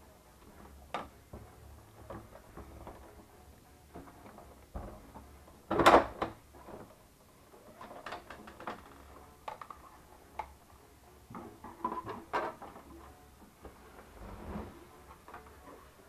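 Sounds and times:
plastic panels clicking and knocking: 0:00.6 - 0:03.2, 0:04.0 - 0:07.0, 0:07.7 - 0:10.6
plastic clatter: 0:07.7 - 0:10.6, 0:11.3 - 0:13.1.

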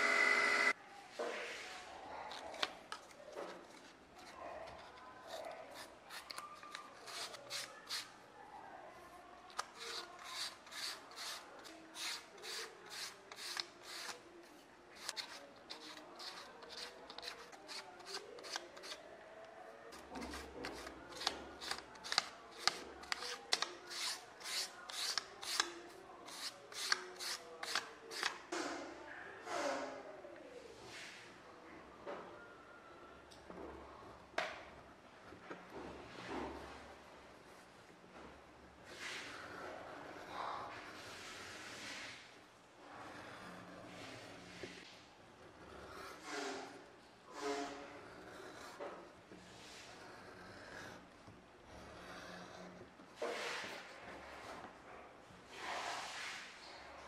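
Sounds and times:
sandpaper scratching leather edge: 0:09.8 - 0:14.2.

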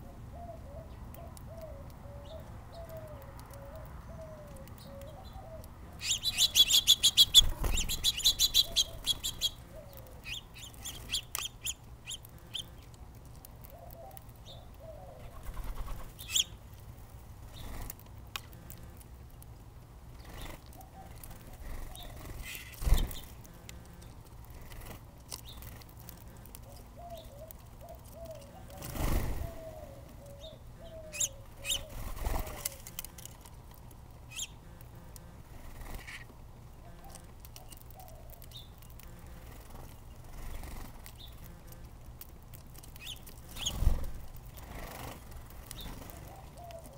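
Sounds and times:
faint dove cooing: 0:00.0 - 0:06.8, 0:07.4 - 0:10.4, 0:13.4 - 0:16.5, 0:20.7 - 0:22.7, 0:26.1 - 0:33.0, 0:45.8 - 0:46.9
songbirds chirping: 0:00.0 - 0:46.9
wings fluttering: 0:06.0 - 0:14.4, 0:15.2 - 0:19.0, 0:20.1 - 0:30.2, 0:31.1 - 0:36.3, 0:36.9 - 0:46.9.

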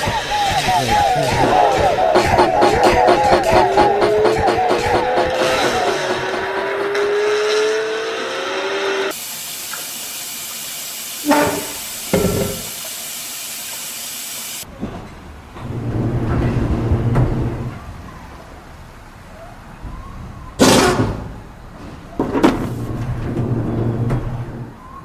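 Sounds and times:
gliding cartoon tones: 0:00.0 - 0:09.1
loud hiss: 0:09.1 - 0:14.6
thumps: 0:11.3 - 0:12.8.

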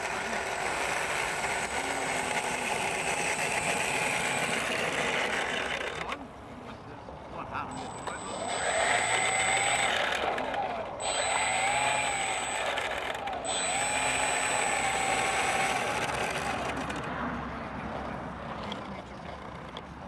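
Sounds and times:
model aeroplane motor whining: 0:00.0 - 0:06.2, 0:07.7 - 0:17.1.

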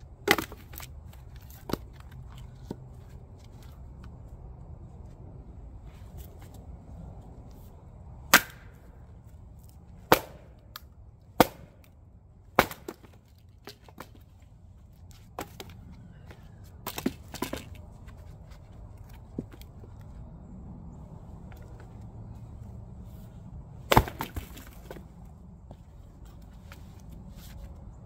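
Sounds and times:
axe chopping firewood: 0:00.1 - 0:02.8, 0:08.3 - 0:08.9, 0:10.0 - 0:14.3, 0:15.3 - 0:15.8, 0:16.8 - 0:17.8, 0:23.9 - 0:25.1.

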